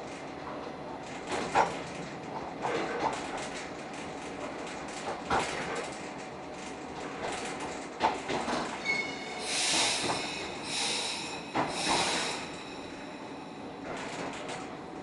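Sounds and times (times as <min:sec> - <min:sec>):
train rumbling on rails: 0:00.0 - 0:15.0
hissing squeal: 0:08.8 - 0:13.8
high whine: 0:09.4 - 0:14.2.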